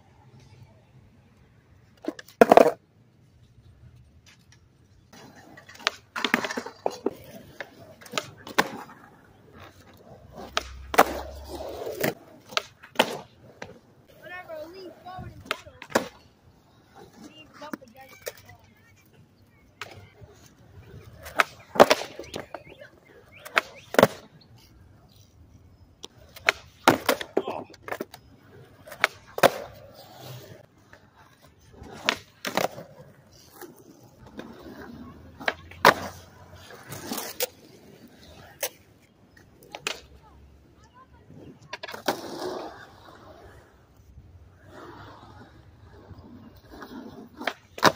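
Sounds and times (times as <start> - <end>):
skateboard wheels rolling on concrete: 0.0 - 47.9
skateboard clacking down: 2.0 - 2.8, 5.1 - 16.3, 16.9 - 24.3, 26.0 - 37.7, 46.6 - 47.9.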